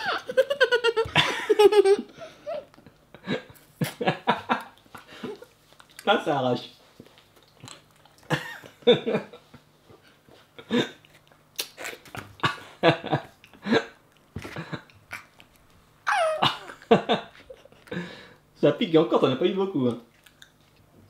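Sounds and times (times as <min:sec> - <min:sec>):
girl squealing: 0:16.1 - 0:16.6.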